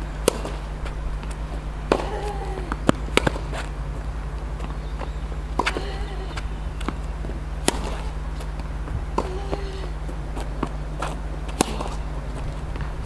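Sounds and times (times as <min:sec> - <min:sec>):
tennis racket strikes: 0:00.0 - 0:03.8, 0:05.5 - 0:07.0, 0:07.6 - 0:08.2, 0:08.9 - 0:12.2
steady low hum: 0:00.0 - 0:13.0
tennis ball bounces: 0:00.0 - 0:13.0.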